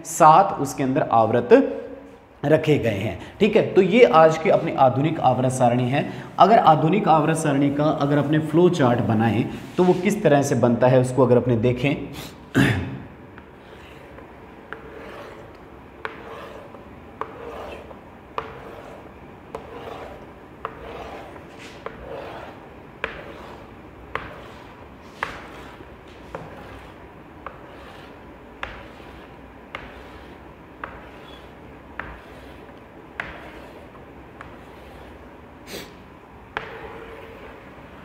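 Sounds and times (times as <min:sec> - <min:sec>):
chalk scraping on blackboard: 0:09.4 - 0:10.2, 0:13.4 - 0:38.0
chalk tapping on blackboard: 0:13.4 - 0:35.2, 0:36.5 - 0:37.6.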